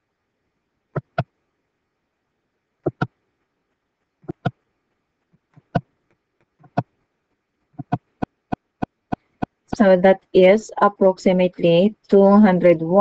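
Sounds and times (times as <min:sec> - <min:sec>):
computer mouse clicking: 0:01.0 - 0:01.3, 0:02.9 - 0:03.1, 0:04.2 - 0:04.6, 0:06.6 - 0:06.9, 0:07.8 - 0:09.6.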